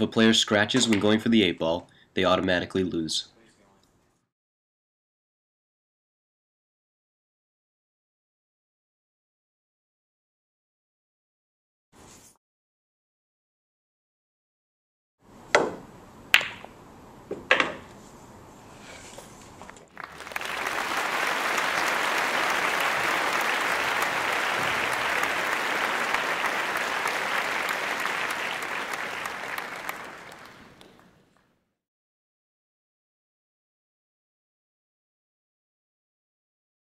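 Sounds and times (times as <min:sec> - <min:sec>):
applause: 0:19.9 - 0:31.5.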